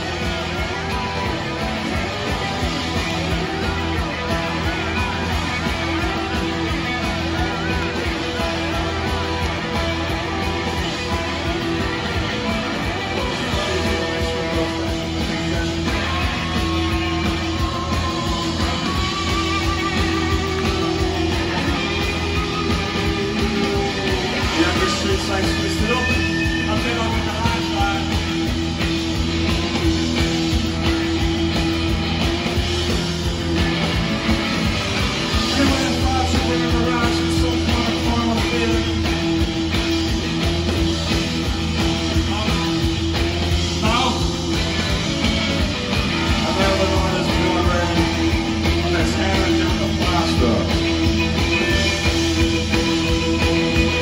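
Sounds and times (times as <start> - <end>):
bass guitar: 0.0 - 54.0
drums: 0.0 - 54.0
electric guitars: 0.0 - 54.0
person singing lead vocal: 7.3 - 28.4, 35.3 - 39.2, 46.0 - 54.0.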